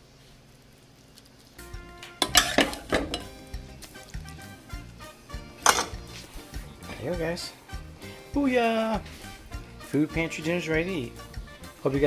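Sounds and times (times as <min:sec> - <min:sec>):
spoon scraping against pot: 0:02.2 - 0:03.3.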